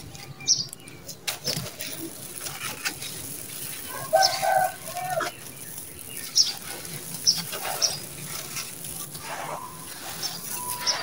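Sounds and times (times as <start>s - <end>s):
gritty sand crunching by hand: 0.0s - 11.0s
sharp crackles: 0.0s - 11.0s.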